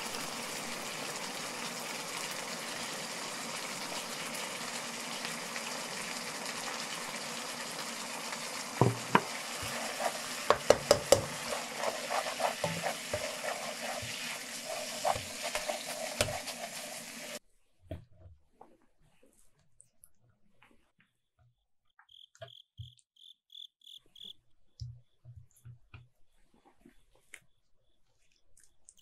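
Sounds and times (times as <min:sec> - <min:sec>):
sauce sizzling and bubbling: 0:00.0 - 0:17.4
wooden spoon scraping a wok: 0:08.9 - 0:17.4.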